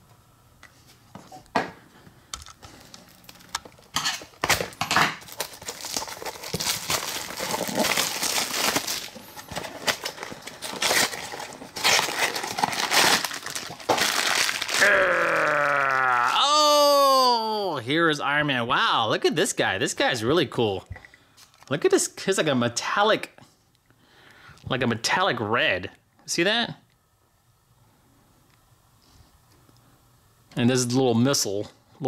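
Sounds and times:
packaging crinkling and tearing: 2.7 - 16.4.

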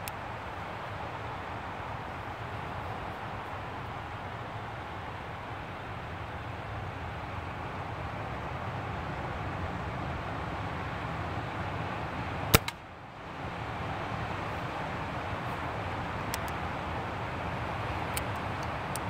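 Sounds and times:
background noise rush: 0.0 - 19.0
air pistol firing: 12.6 - 12.8
pistol handling clicks: 12.6 - 12.8, 16.4 - 16.6.

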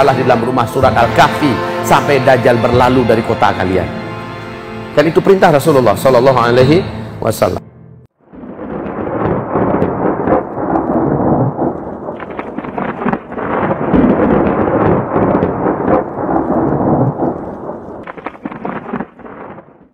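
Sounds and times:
thunder-like rumbling with crackles: 8.2 - 19.9.

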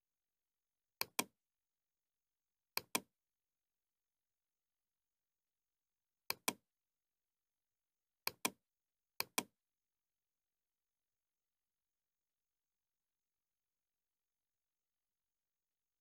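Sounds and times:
computer mouse clicks: 1.0 - 1.3, 2.8 - 3.1, 6.3 - 6.6, 8.3 - 8.6, 9.2 - 9.5.

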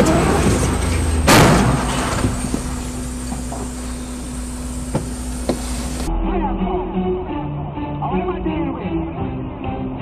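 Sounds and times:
loud vehicle crash: 0.0 - 3.0
truck engine and road noise: 0.0 - 10.0.

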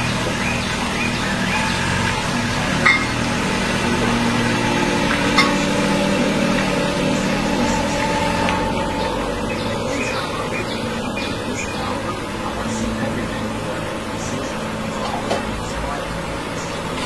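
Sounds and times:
mechanical hum: 0.0 - 17.0.

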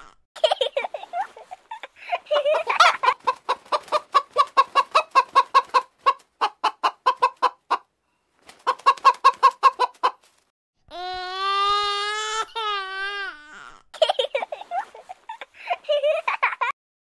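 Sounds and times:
hen clucking: 2.4 - 7.9, 8.6 - 10.2.

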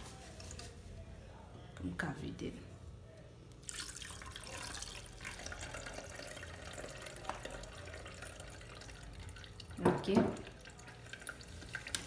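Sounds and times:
liquid splashing and trickling: 3.6 - 12.0.

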